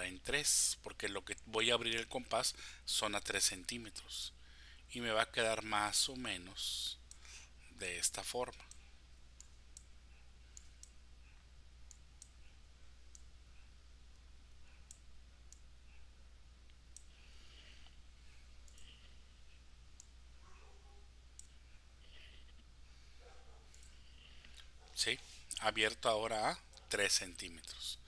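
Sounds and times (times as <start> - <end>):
low steady hum: 0.0 - 28.0
faint computer mouse clicks: 18.6 - 19.0, 23.7 - 24.7.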